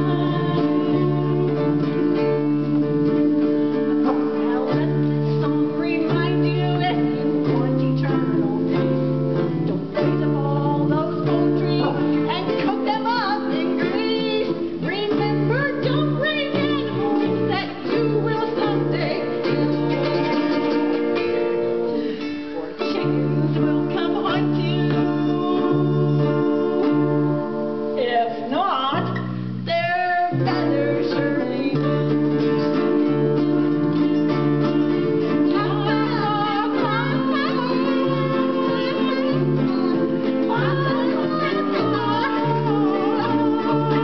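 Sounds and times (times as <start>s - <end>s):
person singing: 0.0s - 44.0s
ukulele strumming: 0.0s - 44.0s.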